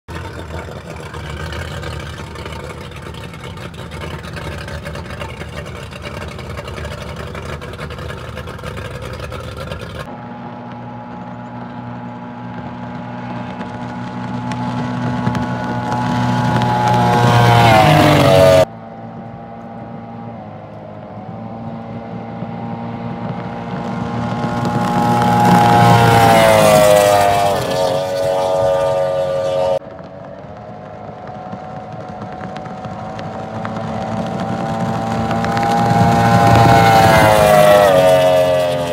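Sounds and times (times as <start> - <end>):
speedboat outboard engine: 0.1 - 38.9.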